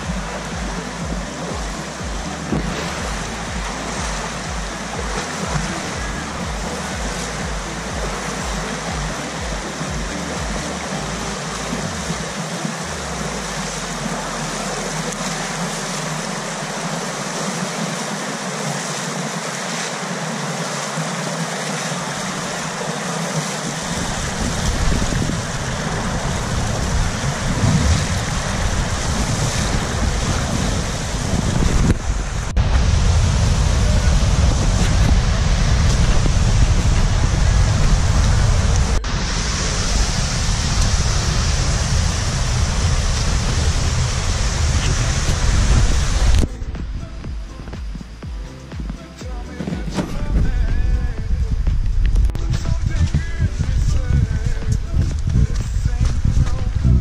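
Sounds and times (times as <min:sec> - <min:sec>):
person wading in water: 0:00.0 - 0:32.5
river rushing through rapids: 0:00.0 - 0:57.0.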